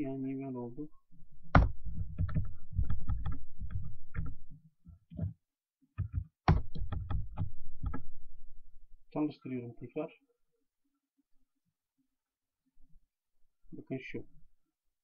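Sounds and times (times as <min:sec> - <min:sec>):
typing on computer keyboard: 0:01.6 - 0:04.4, 0:06.0 - 0:08.0.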